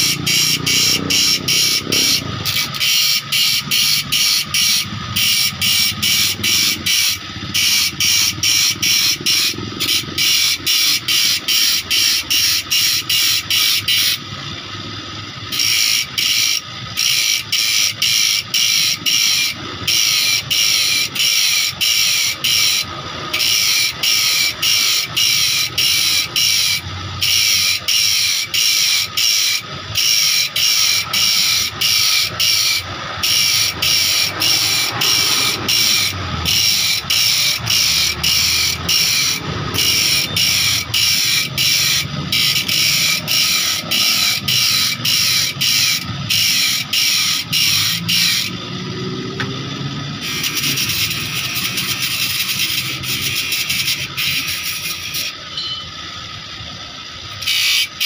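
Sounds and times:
grinding disc sharpening saw: 0.0 - 58.0.

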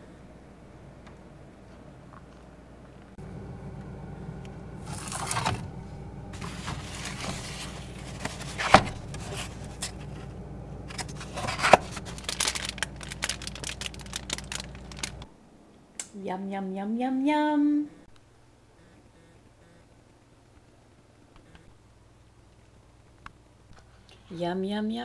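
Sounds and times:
refrigerator hum: 0.0 - 15.7
plastic containers scraping and clicking: 6.4 - 10.2, 10.9 - 15.3.

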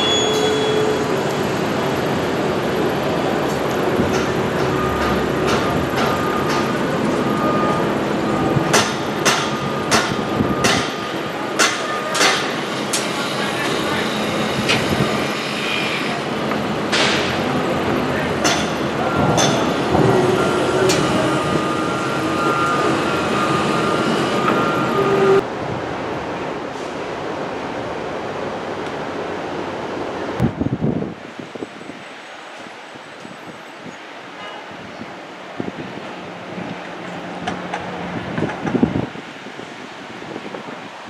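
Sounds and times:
construction machinery noise: 0.0 - 25.5, 34.2 - 40.2
wind-like rush: 24.6 - 41.0.

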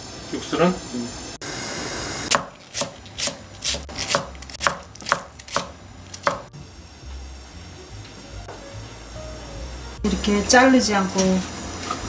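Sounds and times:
knife chopping on wooden board: 2.3 - 6.5.

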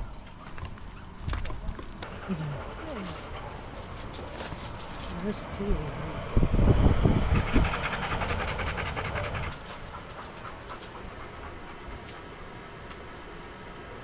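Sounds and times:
dog panting: 2.0 - 6.1, 7.1 - 12.5.

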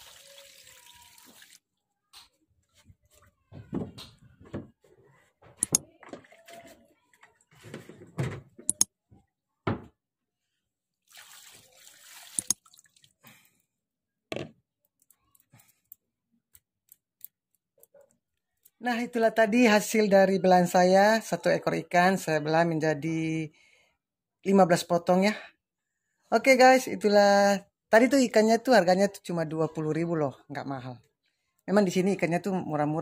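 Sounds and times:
water pouring: 0.0 - 1.7, 11.0 - 13.4.

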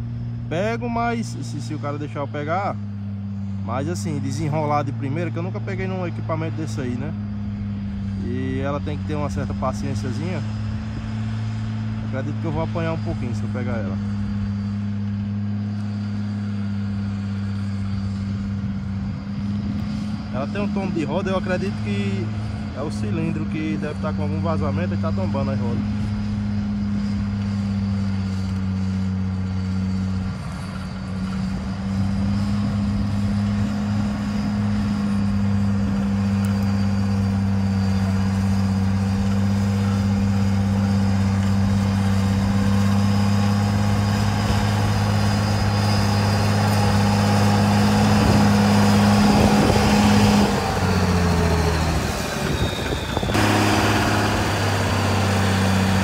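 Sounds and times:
grader engine running under load: 0.0 - 56.0.

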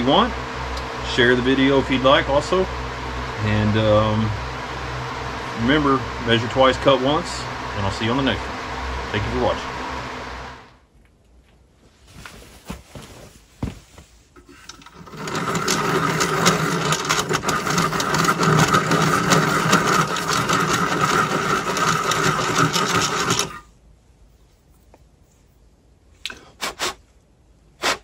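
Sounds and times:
pencil sharpener grinding: 14.4 - 23.7.

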